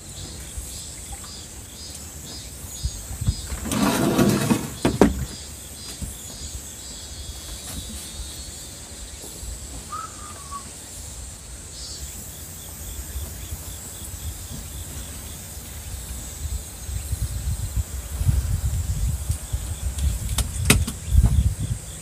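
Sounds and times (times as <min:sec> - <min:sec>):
wind rumble on microphone: 0:02.2 - 0:05.4, 0:12.9 - 0:22.0
short falling bird call: 0:09.8 - 0:10.7.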